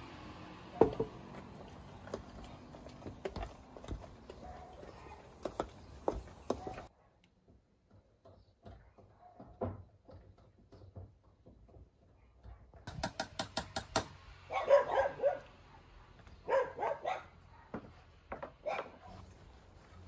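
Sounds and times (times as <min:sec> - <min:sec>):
dog barking: 0:04.4 - 0:05.4, 0:06.5 - 0:07.2, 0:09.1 - 0:09.6, 0:14.5 - 0:18.0, 0:18.6 - 0:19.2.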